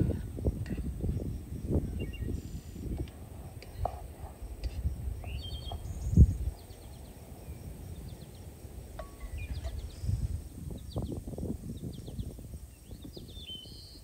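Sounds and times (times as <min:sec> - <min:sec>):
wind rumbling on microphone: 0:00.0 - 0:14.0
small bird chirping: 0:01.0 - 0:03.0, 0:04.5 - 0:14.0.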